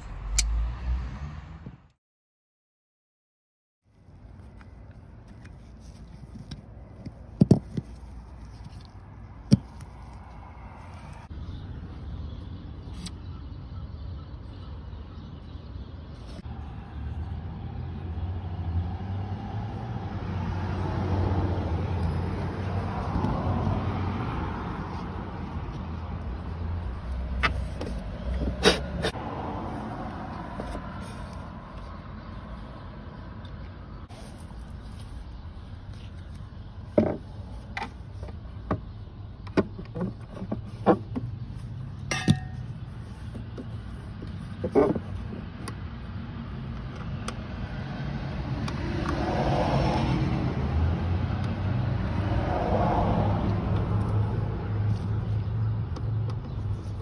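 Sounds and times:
sharp ringing clack: 42.1 - 42.6.

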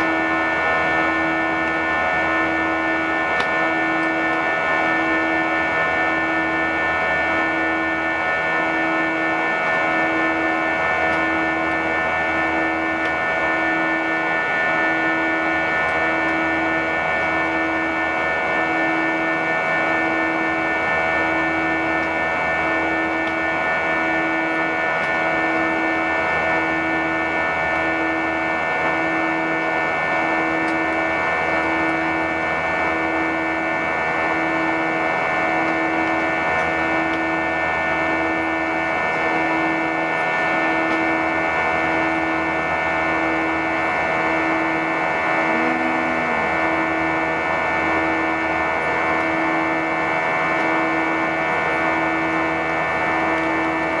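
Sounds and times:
jet engine and airflow drone: 0.0 - 54.0
low pulsing hum: 0.0 - 54.0
whining tones: 0.0 - 54.0.

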